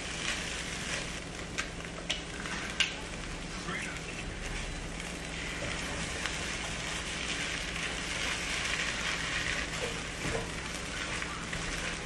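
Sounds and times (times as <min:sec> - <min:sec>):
rice sizzling in a frying pan: 0:00.0 - 0:12.0
spatula scraping a pan: 0:05.4 - 0:12.0.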